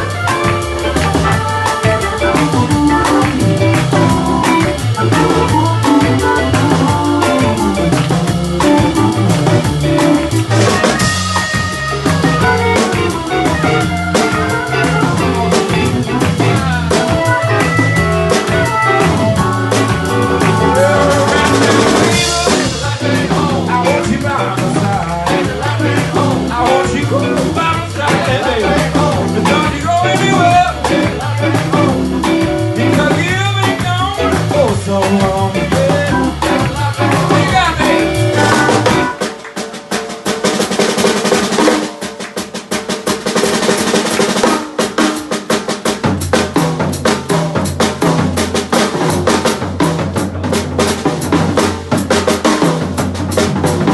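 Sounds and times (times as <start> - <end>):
electric guitar solo: 0.0 - 22.4
organ chords: 0.0 - 39.3
drum kit: 0.0 - 53.9.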